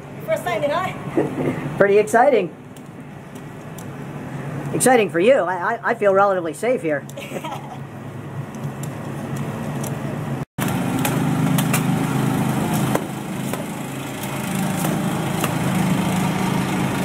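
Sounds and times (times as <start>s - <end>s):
small petrol engine running: 10.6s - 17.0s.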